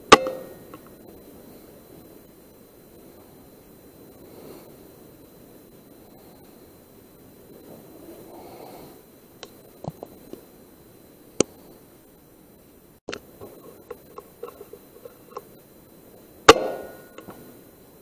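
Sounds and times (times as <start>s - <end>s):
air rifle shot: 16.5s - 17.2s.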